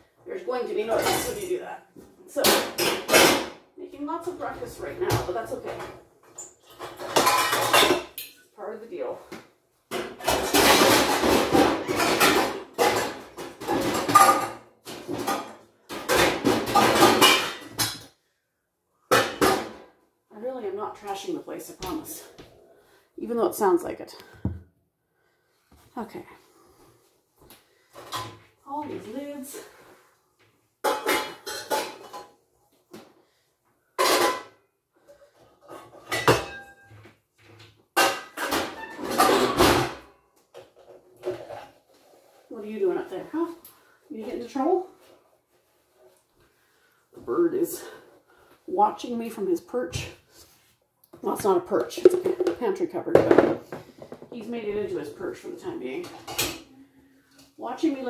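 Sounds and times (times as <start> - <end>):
metal pots and pans clattering: 0.8 - 1.6, 2.4 - 3.6, 4.8 - 8.4, 9.9 - 18.2, 19.1 - 20.0, 27.9 - 28.5, 30.8 - 32.4, 34.0 - 42.4, 51.8 - 54.3, 55.1 - 56.7.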